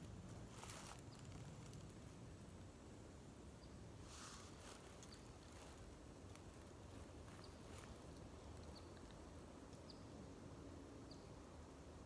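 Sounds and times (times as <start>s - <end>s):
small bird chirps: 6.9s - 10.2s.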